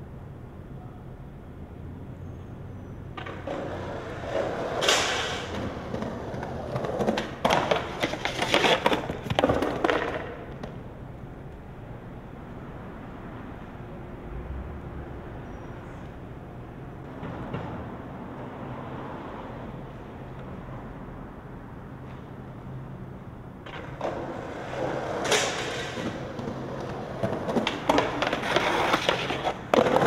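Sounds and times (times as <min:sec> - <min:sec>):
skateboard wheels rolling: 0:02.0 - 0:30.0
skateboard clattering and scraping: 0:03.1 - 0:10.9, 0:17.0 - 0:18.8, 0:23.6 - 0:30.0
skateboard pop: 0:03.2 - 0:10.8.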